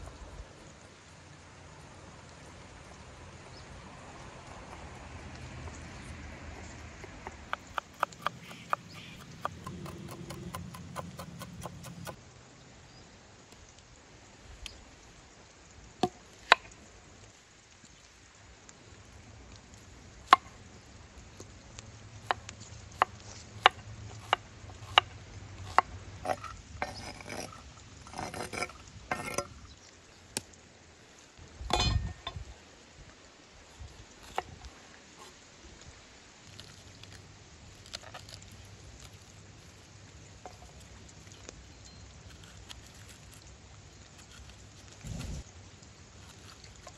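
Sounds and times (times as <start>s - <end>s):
knife chopping on wooden board: 7.5s - 12.2s, 45.0s - 45.4s
knife scraping board: 7.5s - 12.2s, 25.7s - 29.5s, 44.2s - 45.4s.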